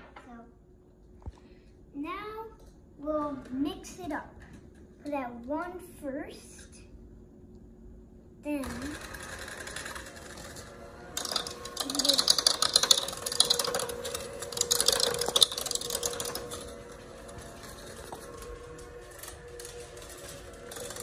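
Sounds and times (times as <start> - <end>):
hand mixer motor hum: 8.8 - 21.0
beaters rattling against bowl: 11.2 - 16.7.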